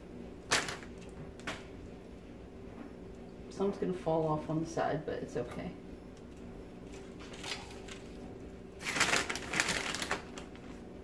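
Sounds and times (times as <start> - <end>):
crinkly rustling of cheese: 0.4 - 1.4, 6.8 - 11.0.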